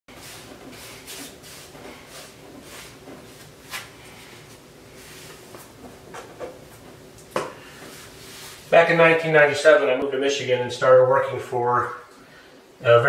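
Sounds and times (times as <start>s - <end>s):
paint brush swishing: 0.1s - 5.7s, 7.8s - 8.8s.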